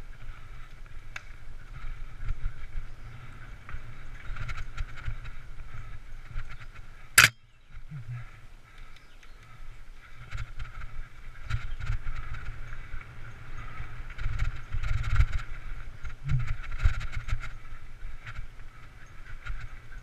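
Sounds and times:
bike rattling over bumps: 0:10.2 - 0:20.0
wind buffeting microphone: 0:10.2 - 0:20.0.

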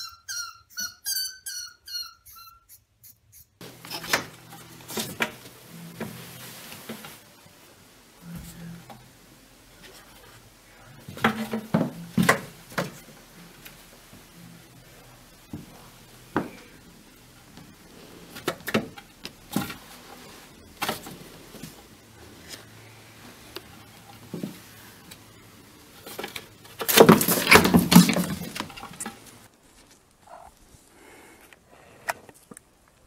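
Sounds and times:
cat scuffling and clattering: 0:26.0 - 0:29.5.

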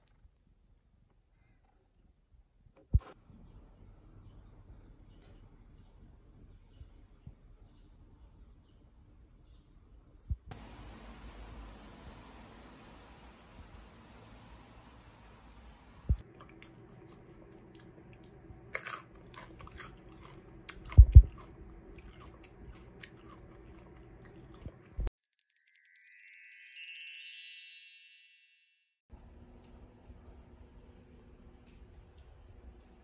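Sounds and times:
crunchy bites and chewing: 0:16.4 - 0:24.8
high sparkling chime: 0:25.2 - 0:29.0.

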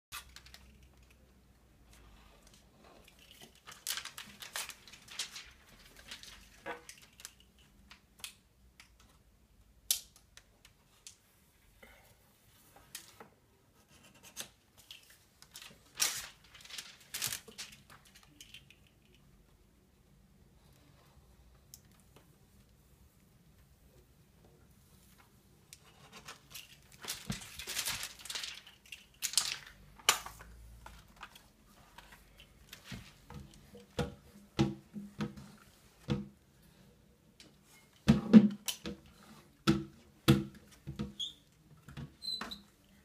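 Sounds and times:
window film scraping and crinkling: 0:03.2 - 0:07.3, 0:26.2 - 0:29.8.

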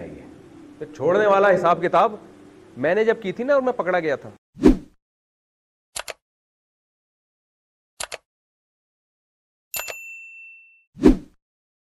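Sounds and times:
bell-like notification chime: 0:09.8 - 0:10.8.

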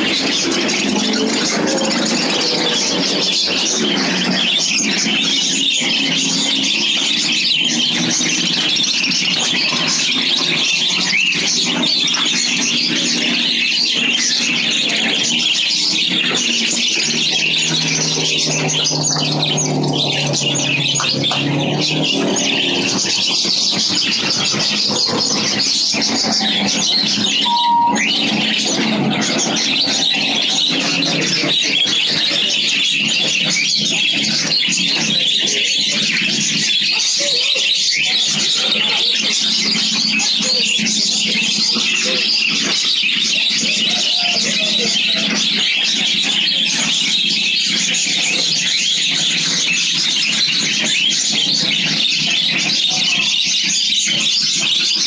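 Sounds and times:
caged birds chirping: 0:00.0 - 0:55.0
whistled note: 0:27.4 - 0:28.5.

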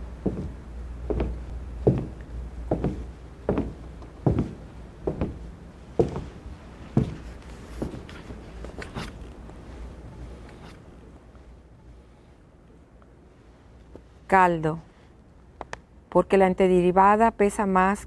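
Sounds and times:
low steady hum: 0:00.0 - 0:18.0
footsteps on stage floor: 0:00.2 - 0:09.6.

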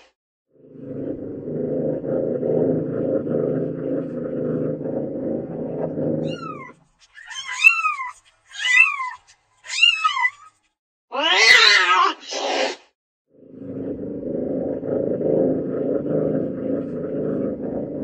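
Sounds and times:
cat meowing: 0:11.1 - 0:12.2
low steady rumble: 0:13.5 - 0:18.0.

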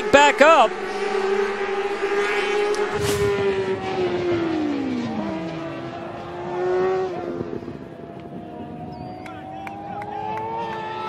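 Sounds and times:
racing motorcycle engines: 0:00.0 - 0:11.0.

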